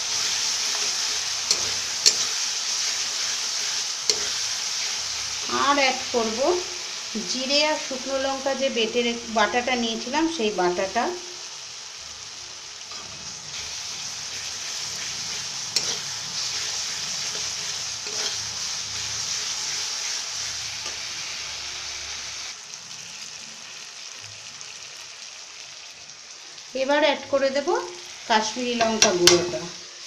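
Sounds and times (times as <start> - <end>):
metal spatula scraping: 0.0 - 5.6, 12.9 - 21.3
paste sizzling in hot oil: 0.0 - 30.0.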